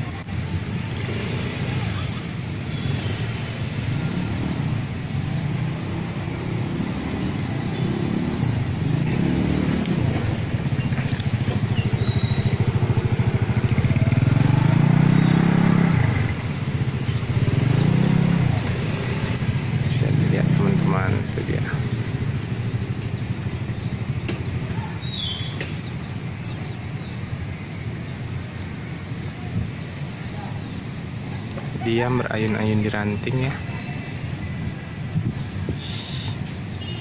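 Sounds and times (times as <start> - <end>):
motorcycles droning past: 0.6 - 24.2.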